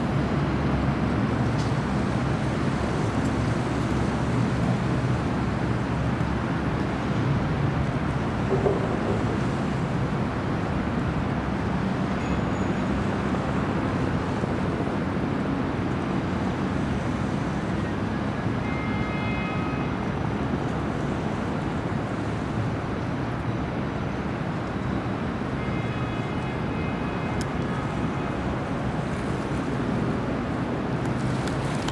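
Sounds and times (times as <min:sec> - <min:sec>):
ferry motors rumbling: 0:00.0 - 0:18.6
city traffic: 0:00.0 - 0:31.9.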